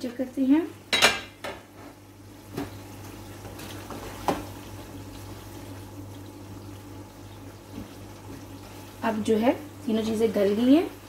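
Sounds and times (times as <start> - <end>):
low steady hum: 0.0 - 11.0
curry bubbling in a wok: 2.3 - 9.9.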